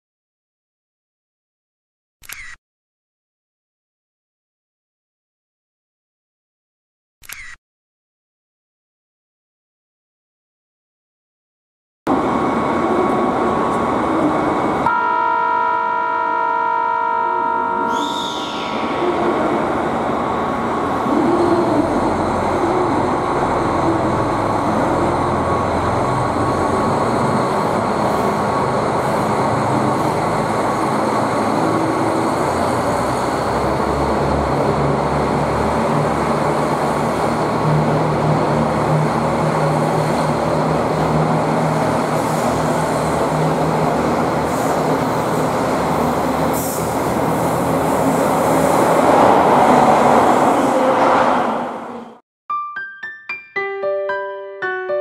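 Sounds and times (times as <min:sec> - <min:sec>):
train wheels on rails: 0:17.9 - 0:52.1.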